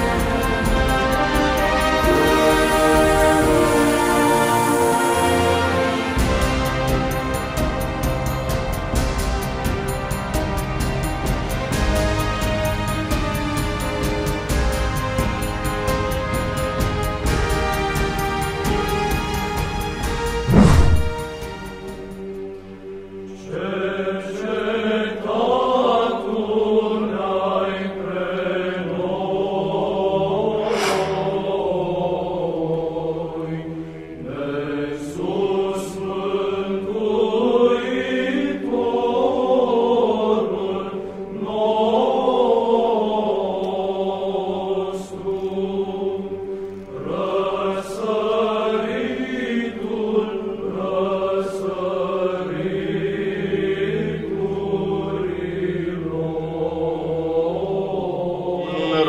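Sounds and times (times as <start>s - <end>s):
held drone note: 58.6s - 59.0s.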